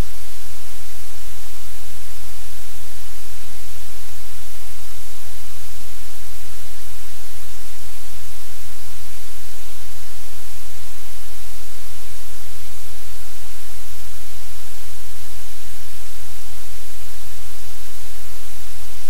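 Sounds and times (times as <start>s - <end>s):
static hiss: 0.0s - 19.0s.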